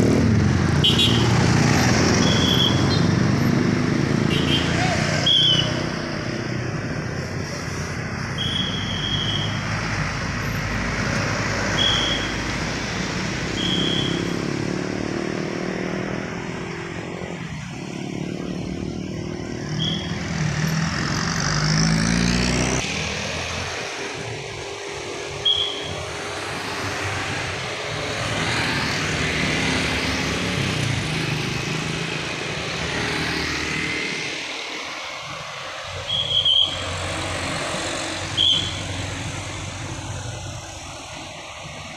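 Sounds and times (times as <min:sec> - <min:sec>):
vehicles passing: 0:00.0 - 0:41.9
traffic whistle blasts: 0:02.2 - 0:03.0, 0:04.3 - 0:05.8, 0:08.3 - 0:09.6, 0:11.7 - 0:12.5, 0:13.5 - 0:14.4, 0:19.7 - 0:20.3, 0:25.3 - 0:26.1, 0:35.9 - 0:37.0, 0:38.2 - 0:39.0.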